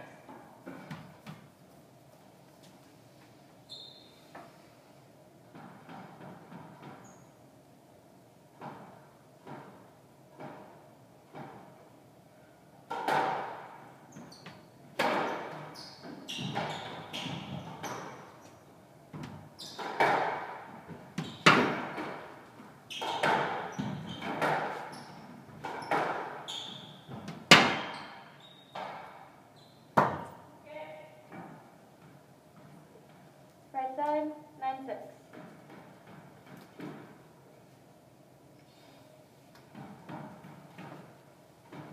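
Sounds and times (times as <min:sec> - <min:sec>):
shoes squeaking: 0:03.6 - 0:04.4, 0:06.9 - 0:07.4, 0:14.1 - 0:18.6, 0:19.2 - 0:20.2, 0:21.1 - 0:22.0, 0:22.9 - 0:30.0
squash ball cracking off racquets: 0:27.1 - 0:28.2.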